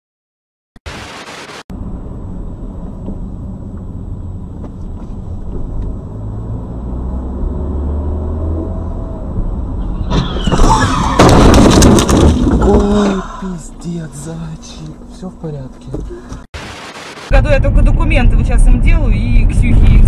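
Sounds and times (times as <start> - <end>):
harsh noise with squeals: 0.8 - 1.6, 9.8 - 11.9
static hiss: 0.9 - 1.6, 16.6 - 17.3
road and engine rumble inside car: 1.7 - 10.5, 12.8 - 16.5.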